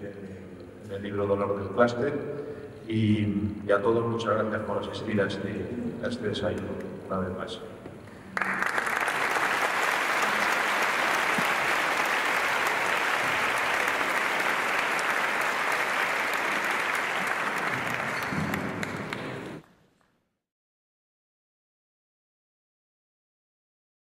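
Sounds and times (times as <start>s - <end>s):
people applauding: 8.3s - 19.6s.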